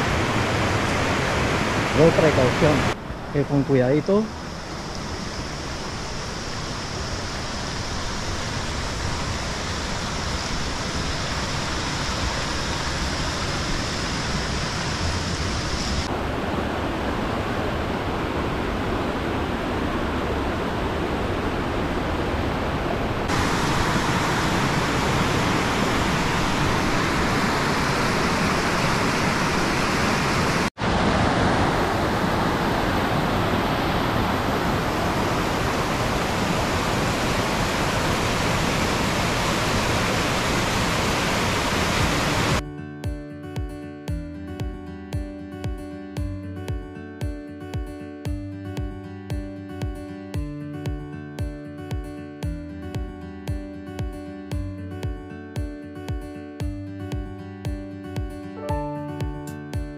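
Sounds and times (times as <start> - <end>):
river rushing over rocks: 0.0 - 42.6.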